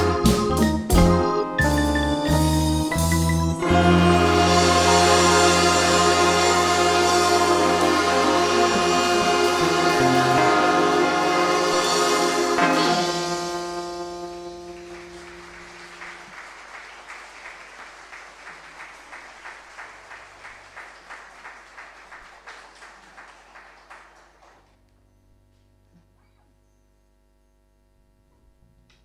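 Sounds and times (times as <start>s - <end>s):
wind band chord: 0.0s - 16.4s
audience applause: 3.6s - 13.1s, 14.3s - 24.7s.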